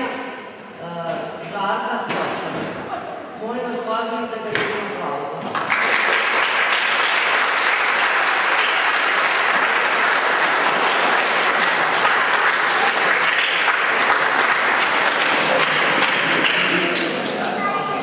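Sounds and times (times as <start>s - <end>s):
crowd applauding: 5.4s - 18.0s.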